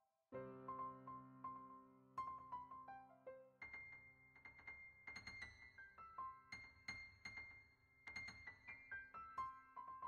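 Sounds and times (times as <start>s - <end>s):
faint piano music: 0.0s - 10.0s.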